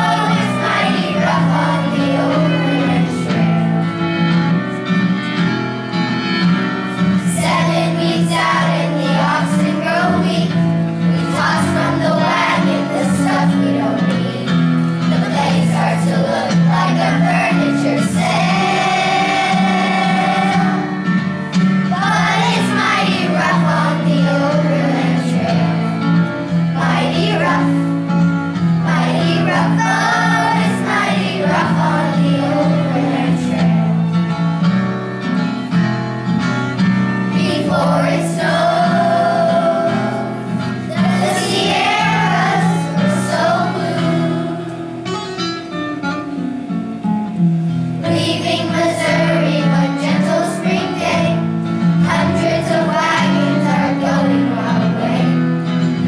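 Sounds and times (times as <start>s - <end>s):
children singing: 0.0s - 3.7s, 7.2s - 21.1s, 21.9s - 28.0s, 28.8s - 34.1s, 37.4s - 44.6s, 48.0s - 55.5s
instrumental accompaniment: 0.0s - 56.0s.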